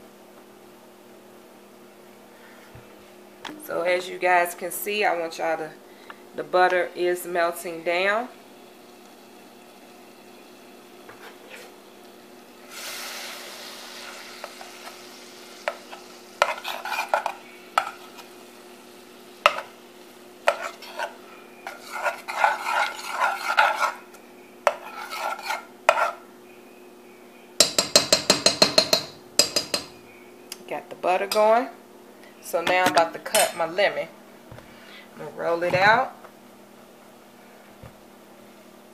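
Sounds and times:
butter sizzling: 0:08.1 - 0:26.3
fork scraping saucepan: 0:11.1 - 0:11.8, 0:15.6 - 0:18.3, 0:20.4 - 0:24.1, 0:24.7 - 0:26.2.

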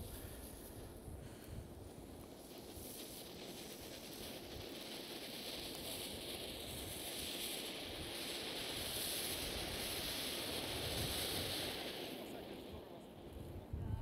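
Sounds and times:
firework fountain hissing: 0:00.0 - 0:14.0.

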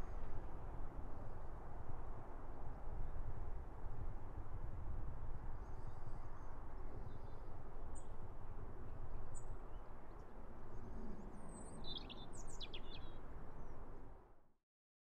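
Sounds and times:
small birds chirping: 0:11.4 - 0:13.2.

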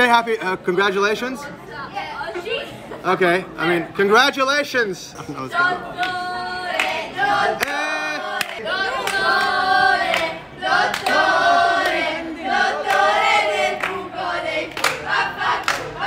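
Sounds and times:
group singing a chant: 0:05.4 - 0:16.0
hand claps: 0:07.6 - 0:10.3, 0:14.7 - 0:16.0.

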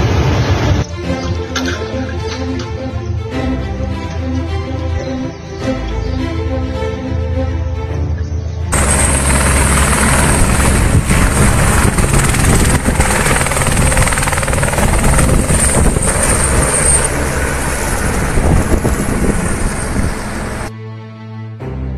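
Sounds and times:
helicopter engine and rotor: 0:08.7 - 0:20.7.

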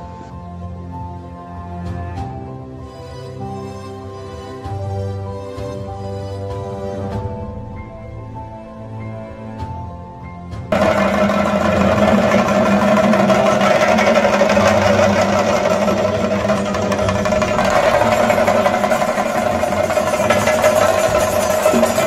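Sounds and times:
drums beaten with sticks: 0:10.7 - 0:22.0.

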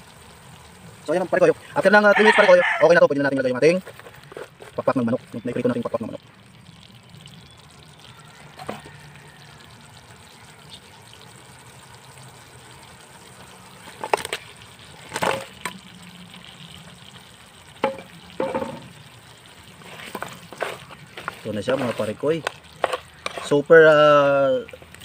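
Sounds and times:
sauce simmering: 0:00.0 - 0:25.0
wet stirring: 0:03.2 - 0:09.6, 0:17.8 - 0:25.0.

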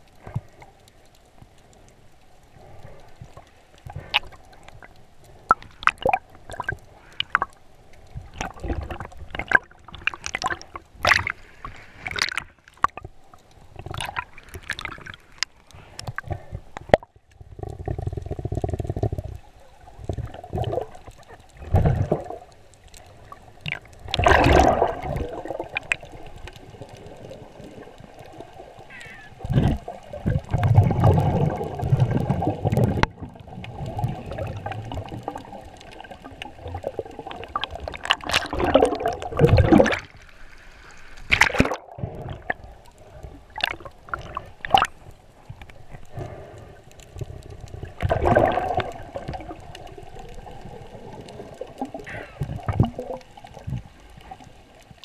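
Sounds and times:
muffled underwater gurgling: 0:23.7 - 0:40.1.

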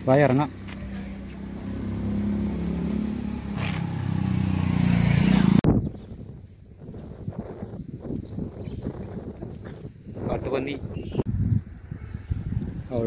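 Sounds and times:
motorcycle engine pulling away: 0:00.6 - 0:05.6
wind rushing over microphone: 0:03.2 - 0:13.0.

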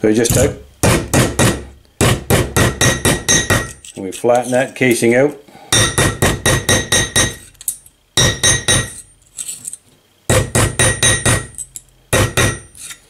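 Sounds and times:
hammer ringing on steel anvil: 0:02.8 - 0:03.8, 0:05.7 - 0:07.4, 0:08.2 - 0:09.0, 0:10.8 - 0:11.6.

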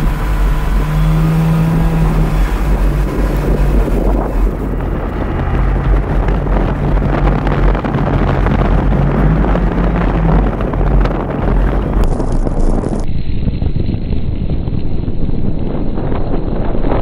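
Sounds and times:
car pushing through snow: 0:00.0 - 0:13.0
car engine running: 0:00.0 - 0:13.2
wind rumble on microphone: 0:00.0 - 0:17.0.

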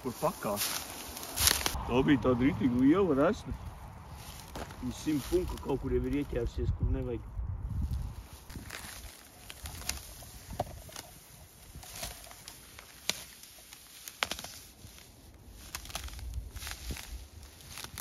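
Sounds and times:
cloth sheet dragging on ground: 0:00.0 - 0:01.8
footsteps through dry grass: 0:00.0 - 0:18.0.

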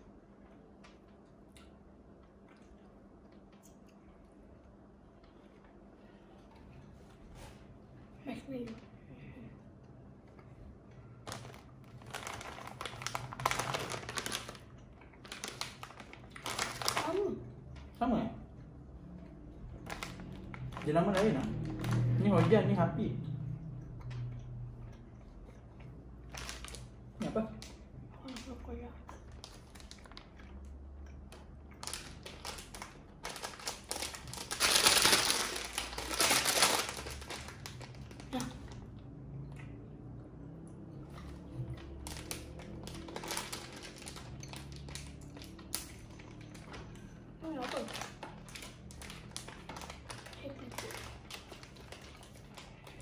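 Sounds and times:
plastic wrapper crinkling: 0:11.2 - 0:17.4, 0:19.8 - 0:22.6, 0:26.3 - 0:28.6, 0:29.3 - 0:30.4, 0:31.3 - 0:38.8, 0:41.8 - 0:53.0.

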